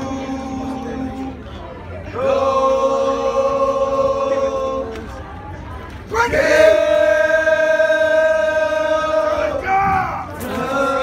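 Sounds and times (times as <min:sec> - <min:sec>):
men singing in unison: 0:06.2 - 0:11.0.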